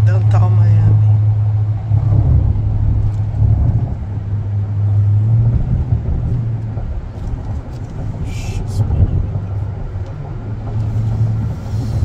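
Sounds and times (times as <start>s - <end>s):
car road noise drone: 0.0s - 12.0s.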